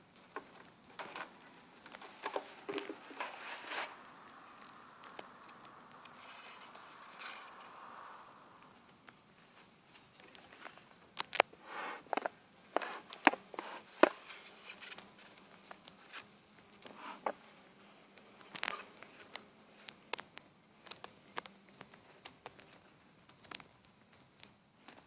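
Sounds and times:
bees humming: 0:00.0 - 0:09.8
smoker bellows hiss: 0:11.6 - 0:14.0.

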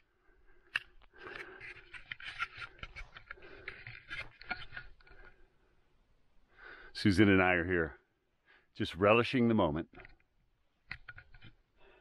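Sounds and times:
light scraping and crunching: 0:00.7 - 0:05.4.

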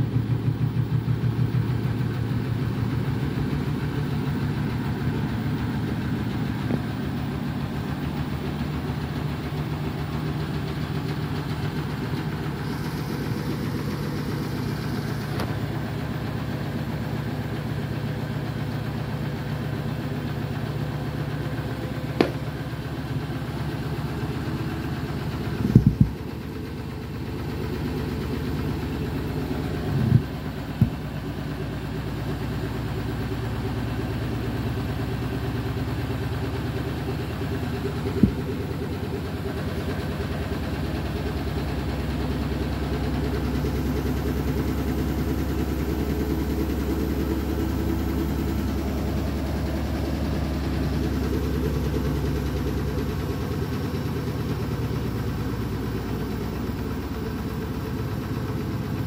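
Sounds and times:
sharp knocks in washing machine: 0:22.2 - 0:22.4.

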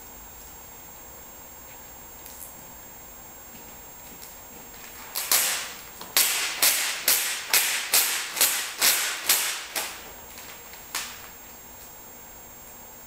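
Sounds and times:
tape peeling off roll: 0:04.8 - 0:11.4.

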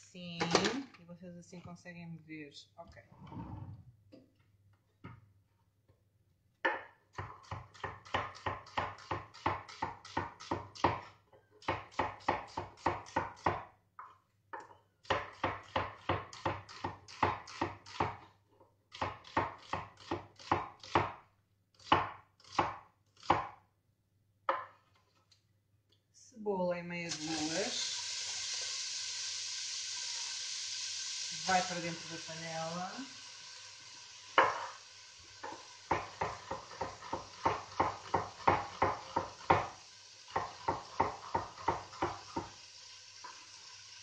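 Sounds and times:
knife chopping on wooden board: 0:06.6 - 0:13.7, 0:15.1 - 0:18.2, 0:21.8 - 0:23.6, 0:35.9 - 0:39.7, 0:40.3 - 0:42.5.

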